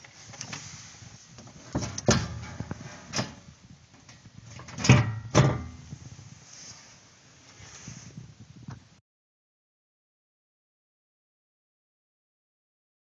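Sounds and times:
rattling: 1.5s - 3.4s
metal knocks and bangs: 1.6s - 3.4s, 4.5s - 5.9s.

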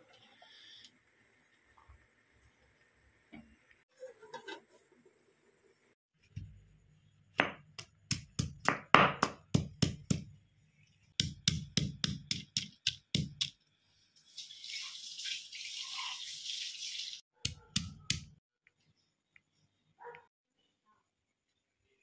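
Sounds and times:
stone pestle pounding in mortar: 7.4s - 10.3s, 11.2s - 13.5s.

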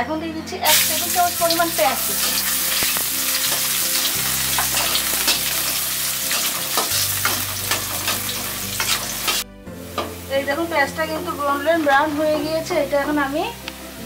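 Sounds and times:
onion sizzling in hot oil: 0.7s - 14.0s
spatula stirring: 2.0s - 9.4s.

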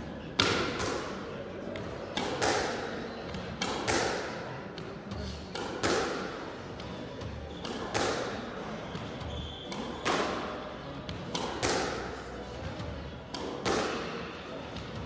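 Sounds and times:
racket striking squash ball: 0.4s - 1.2s, 2.1s - 2.9s, 3.6s - 4.4s, 5.5s - 6.4s, 7.5s - 9.0s, 9.7s - 12.2s, 13.3s - 14.2s.

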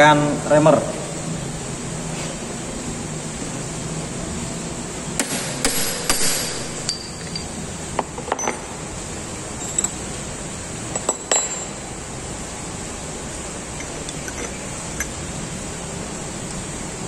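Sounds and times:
metal tool pieces knocking together: 6.8s - 7.6s, 13.8s - 15.2s
hammer tapping steel tooling: 13.8s - 15.2s.

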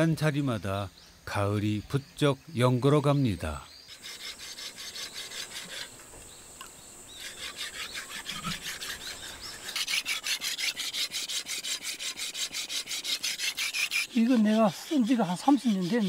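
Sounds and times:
blade scraping on whetstone: 3.9s - 6.0s, 7.1s - 16.0s.

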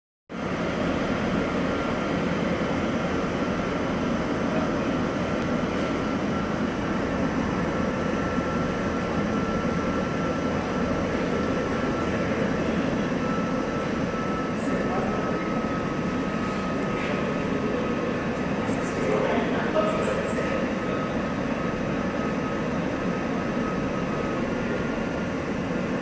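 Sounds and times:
rushing fan-driven air: 0.3s - 26.0s
thin steady whine: 0.3s - 26.0s.

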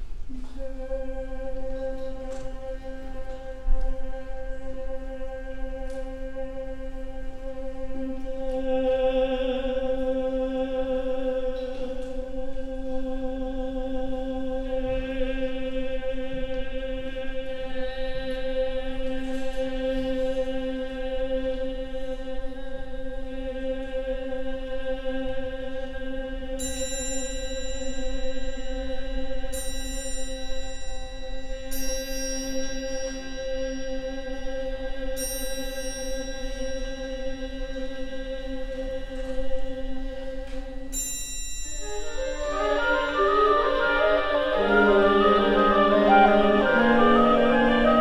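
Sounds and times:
choir holding a low drone: 0.0s - 26.8s, 28.0s - 41.0s, 41.8s - 48.0s
higher tones: 41.2s - 48.0s.

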